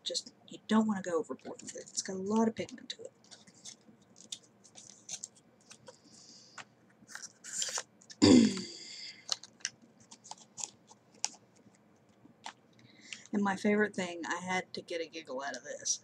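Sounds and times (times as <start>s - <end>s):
packaging clicks and rustles: 3.2s - 8.2s, 9.2s - 11.7s.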